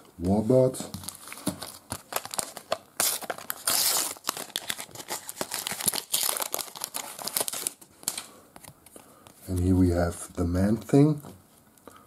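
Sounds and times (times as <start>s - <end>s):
wrapper crinkling: 0.9s - 8.3s
wrapper tearing: 1.0s - 8.3s.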